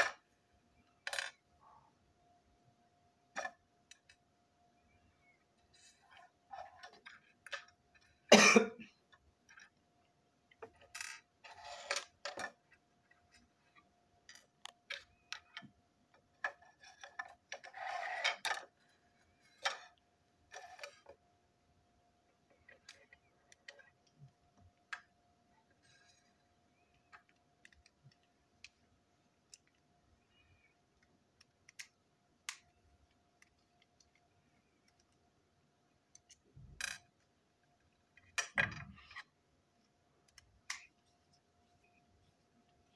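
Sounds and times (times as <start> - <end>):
faint steady hum: 0.0 - 42.9
plastic toy parts clicking: 31.0 - 35.2, 36.1 - 37.2.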